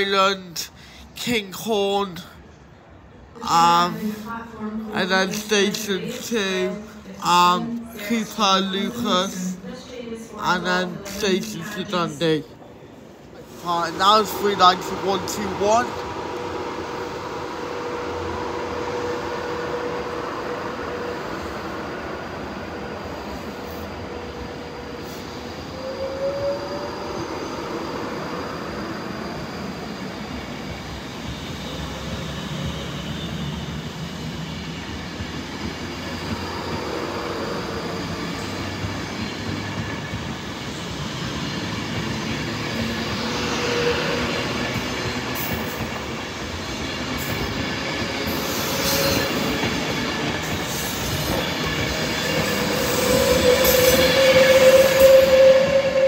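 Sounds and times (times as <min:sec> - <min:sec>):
train wheels rumbling on rails: 0:12.4 - 0:56.0.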